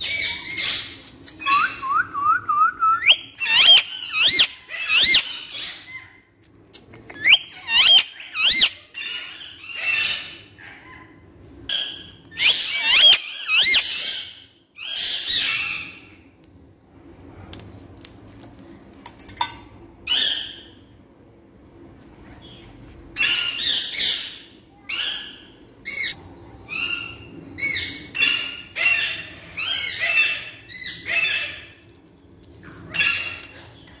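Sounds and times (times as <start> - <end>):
parakeet squawking: 3.4 - 6.1, 7.3 - 11.1, 11.7 - 16.1.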